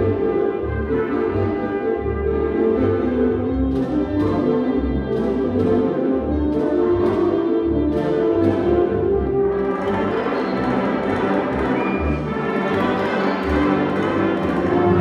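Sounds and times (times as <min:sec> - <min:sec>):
concert band playing: 0:00.0 - 0:15.0.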